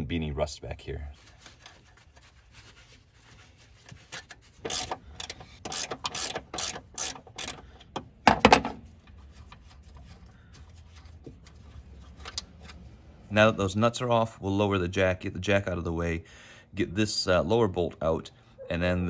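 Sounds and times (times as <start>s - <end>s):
ratchet wrench rasping: 4.6s - 8.0s
metal clunk: 7.5s - 8.8s.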